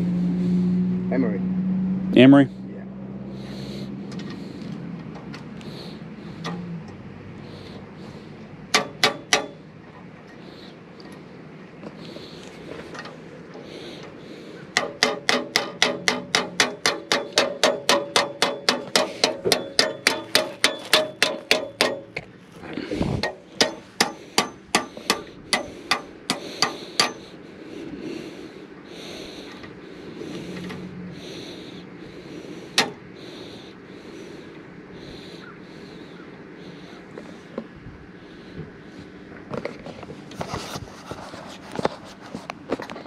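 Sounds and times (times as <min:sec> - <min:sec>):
hammer blows: 0:08.7 - 0:09.6, 0:14.7 - 0:22.2, 0:22.9 - 0:27.4.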